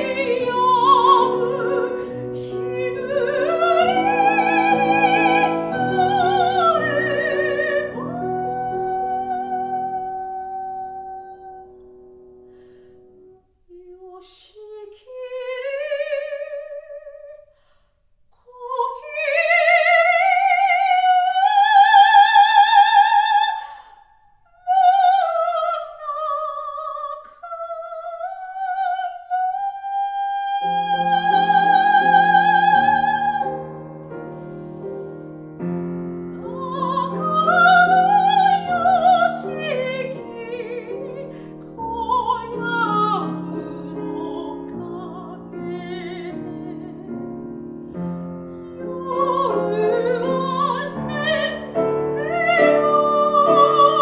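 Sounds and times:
soprano singing with vibrato: 0.0 - 11.8, 13.7 - 17.5, 18.4 - 34.4, 36.2 - 54.0
piano chords: 0.0 - 13.5, 29.9 - 54.0.

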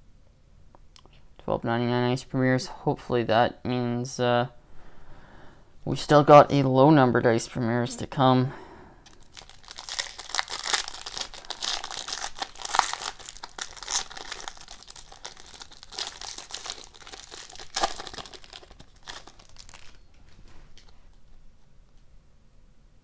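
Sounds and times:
foil wrapper crinkling and tearing: 9.0 - 21.3.

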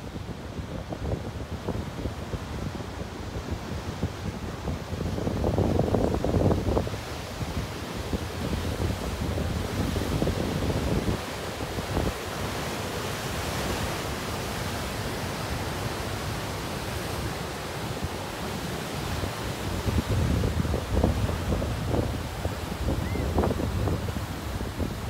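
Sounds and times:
wind buffeting microphone: 0.0 - 12.2, 19.1 - 25.0
ocean surf washing: 0.0 - 25.0.

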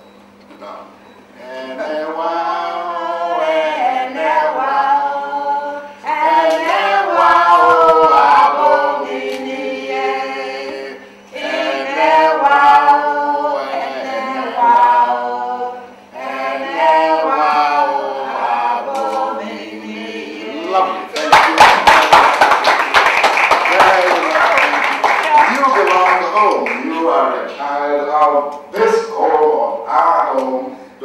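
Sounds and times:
man and woman singing unaccompanied: 1.4 - 21.2.

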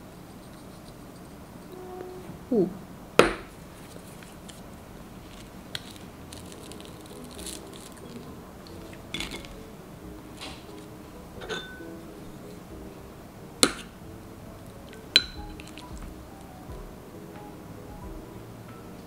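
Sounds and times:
toast crackling as torn: 4.2 - 9.6.

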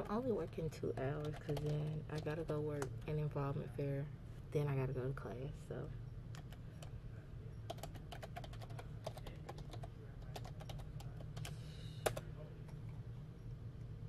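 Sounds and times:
computer keyboard typing: 0.0 - 3.0, 6.4 - 6.9, 7.7 - 12.8
steady low hum: 0.0 - 14.0.

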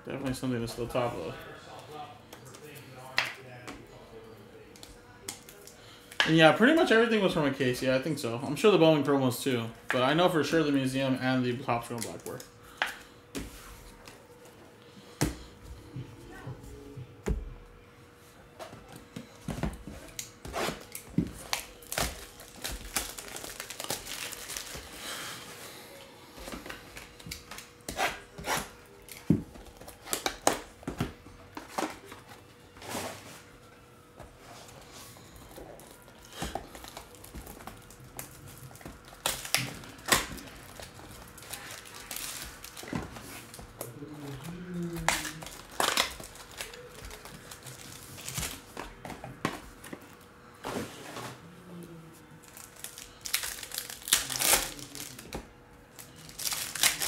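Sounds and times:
plastic wrap crinkling and tearing: 20.2 - 25.4, 35.6 - 48.8, 52.4 - 57.0.

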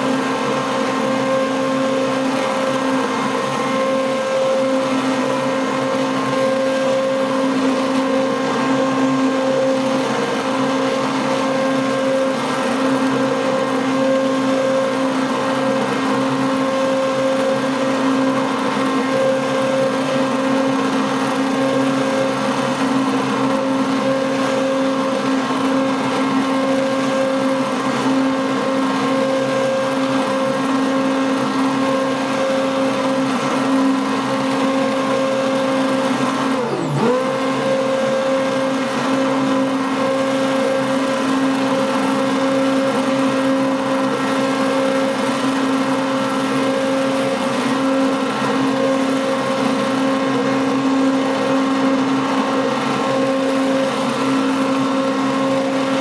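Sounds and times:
stick blender motor hum: 0.0 - 56.0.

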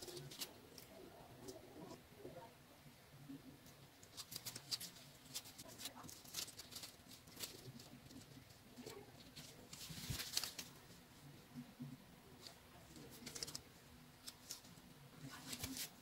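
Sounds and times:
gloved hands handling soft buns: 3.8 - 11.3.

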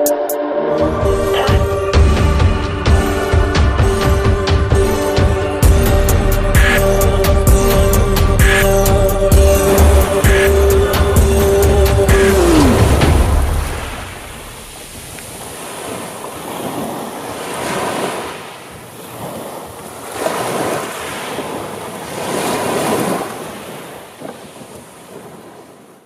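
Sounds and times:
waves washing onto shore: 9.4 - 26.0.

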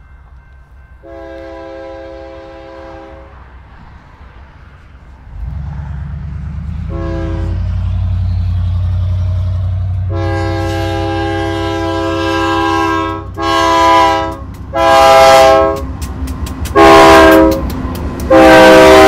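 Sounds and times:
locomotive air horn chord: 1.0 - 3.4, 6.8 - 7.8, 9.9 - 16.0, 16.7 - 17.7, 18.3 - 19.0
diesel engines rumbling: 1.0 - 19.0.

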